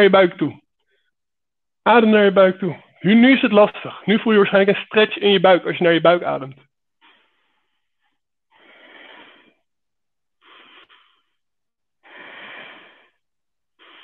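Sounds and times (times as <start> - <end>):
man breathing slowly: 7.0 - 9.7, 10.3 - 14.0.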